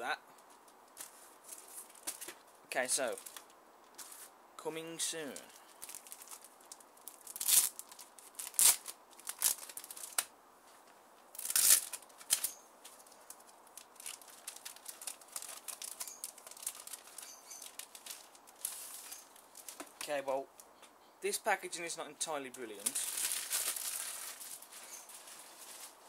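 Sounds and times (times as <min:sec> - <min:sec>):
plastic film crinkling: 0:00.9 - 0:02.4, 0:03.1 - 0:04.3, 0:05.2 - 0:10.3, 0:11.4 - 0:20.0, 0:22.8 - 0:26.0
plastic film ripping: 0:05.6 - 0:10.3, 0:11.4 - 0:19.8, 0:22.8 - 0:25.9.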